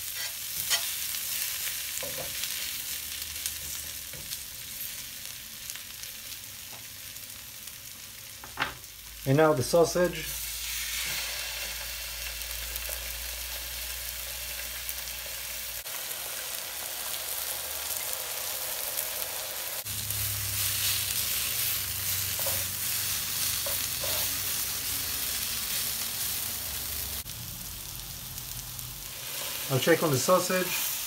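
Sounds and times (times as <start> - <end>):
tongs stirring vegetables: 0.0 - 2.7, 20.5 - 24.6
food sizzling on a griddle: 0.0 - 31.0.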